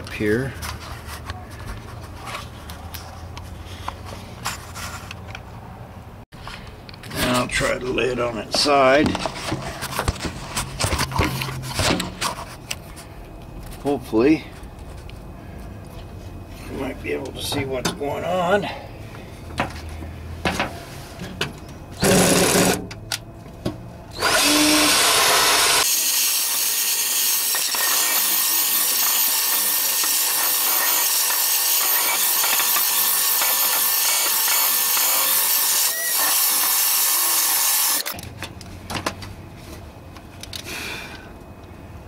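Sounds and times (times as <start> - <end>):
electric drill sanding rusty steel: 22.0 - 22.8, 24.2 - 38.2.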